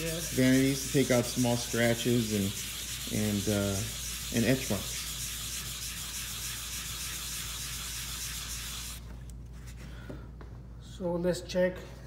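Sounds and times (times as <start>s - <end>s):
abrasive pad scrubbing wet tile: 0.0s - 9.0s.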